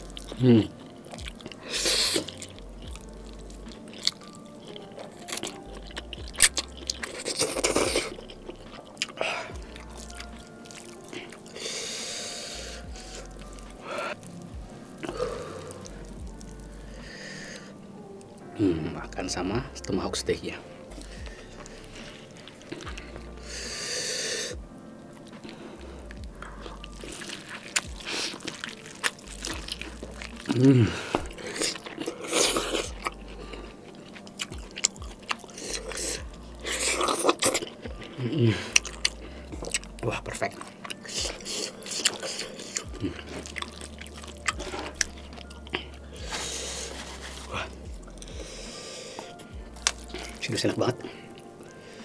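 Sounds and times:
slurping and chewing noodles: 0.0s - 17.8s, 18.6s - 52.0s
breathy hiss: 1.5s - 2.4s, 11.1s - 18.0s, 20.7s - 29.2s, 35.5s - 37.4s, 40.7s - 43.2s, 45.7s - 49.5s, 51.0s - 52.0s.

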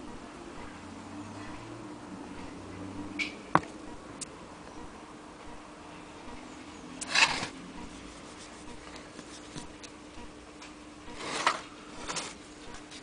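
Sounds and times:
low steady hum: 0.0s - 13.0s
rustling scrapes of sewing machine: 7.0s - 7.5s, 11.2s - 12.4s.

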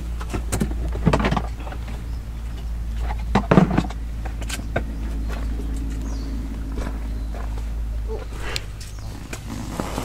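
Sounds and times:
low hum: 0.0s - 10.0s.

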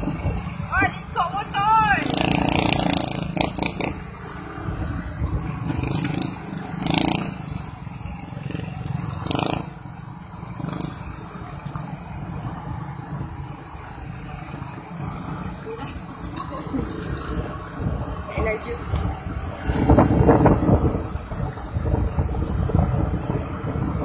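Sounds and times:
small motorcycle engine running: 1.4s - 4.2s.

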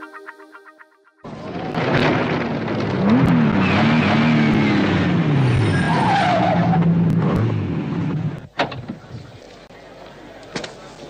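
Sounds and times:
car engine revving hard: 2.6s - 8.4s.

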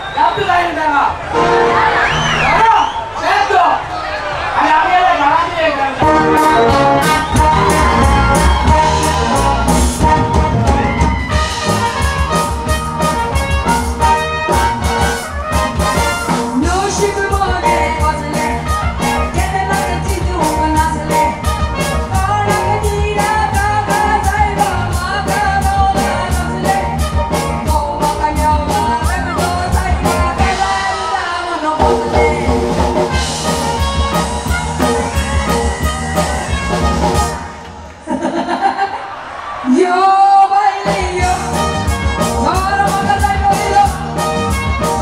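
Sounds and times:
live band music: 0.0s - 3.7s, 5.2s - 38.0s, 40.0s - 45.0s
woman singing into a microphone: 16.6s - 21.4s, 22.1s - 32.8s, 39.7s - 41.6s, 42.4s - 44.1s
steady percussion beat: 32.6s - 37.6s.

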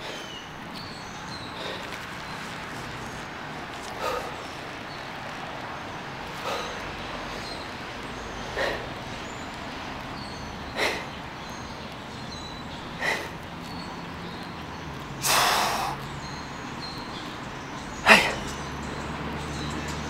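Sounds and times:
man exhaling sharply: 15.2s - 16.0s.

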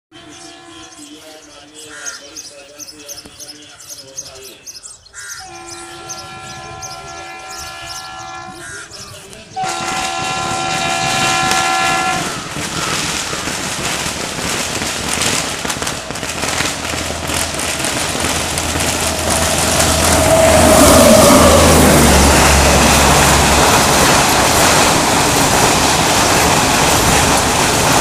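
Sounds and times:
locomotive air horn blasts: 0.1s - 1.5s, 5.4s - 8.8s, 9.5s - 13.2s, 13.9s - 25.3s
train approaching at speed: 0.1s - 3.0s, 5.4s - 28.0s
firecrackers crackling: 9.6s - 28.0s.

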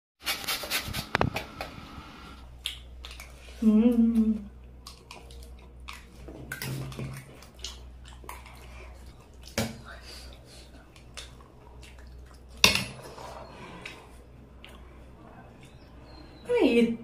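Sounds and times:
eating sounds: 2.6s - 16.4s.

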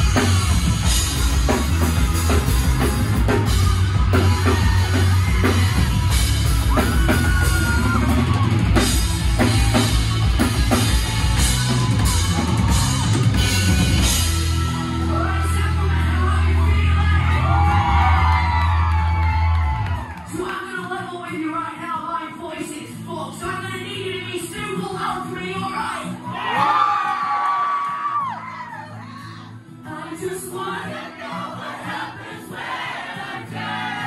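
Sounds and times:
drum kit beat: 0.0s - 15.9s
electric guitars: 0.0s - 20.3s
bass: 0.0s - 27.0s.

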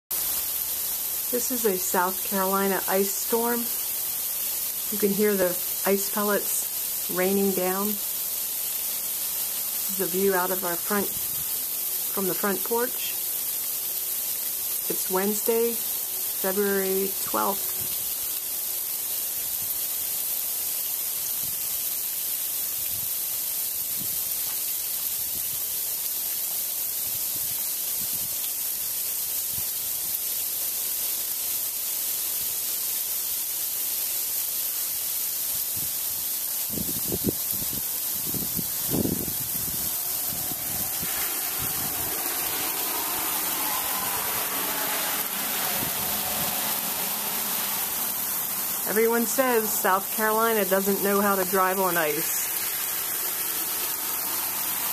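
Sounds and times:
car passing: 37.9s - 54.9s.

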